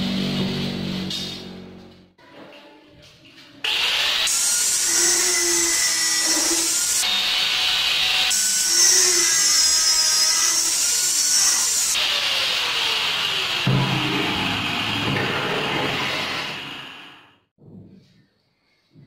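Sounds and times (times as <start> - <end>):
angle grinder motor whining: 3.7 - 13.7
grinder disc cutting steel: 3.7 - 17.2.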